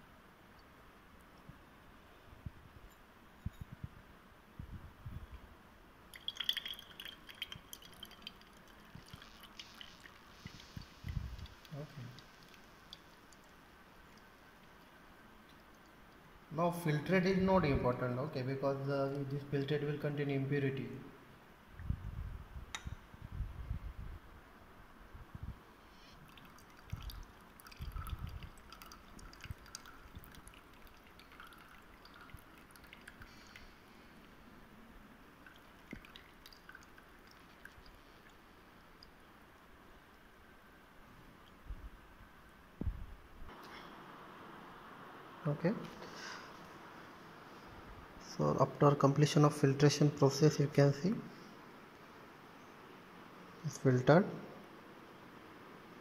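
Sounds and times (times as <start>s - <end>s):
liquid dripping into glass beaker: 6.1s - 16.3s, 26.0s - 34.1s, 35.4s - 40.2s
water trickling into a funnel: 6.1s - 16.5s, 19.0s - 19.7s, 26.0s - 34.4s, 35.3s - 40.3s
small glassy ticks: 6.2s - 16.2s
dull low bumps: 42.8s - 43.5s.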